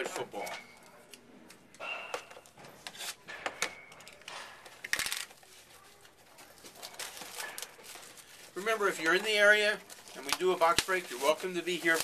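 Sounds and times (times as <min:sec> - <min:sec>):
cardboard and plastic rustling: 0:04.7 - 0:12.0.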